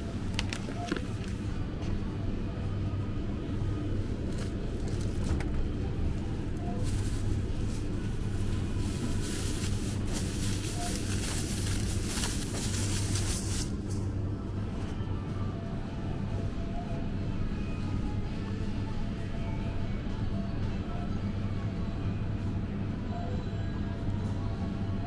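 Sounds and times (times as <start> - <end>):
steady low hum: 0.0 - 25.0
plastic bag crinkling: 7.8 - 13.7.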